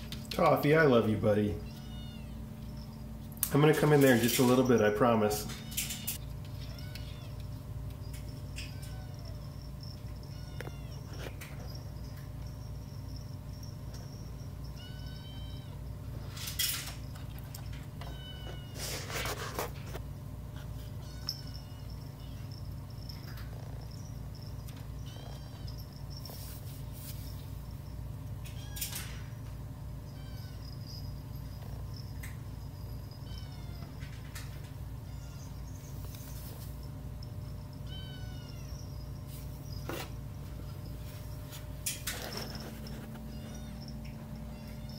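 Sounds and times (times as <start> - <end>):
steady low hum: 0.0 - 44.9
kittens mewing: 1.6 - 3.2, 5.5 - 11.8, 17.4 - 26.2, 37.0 - 40.3
scraping and rustling: 16.2 - 21.0, 40.9 - 44.1.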